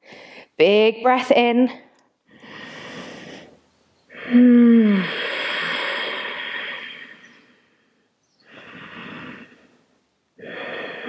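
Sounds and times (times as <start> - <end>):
woman breathing: 0.0 - 0.6, 2.2 - 11.0
woman sighing: 4.2 - 7.0.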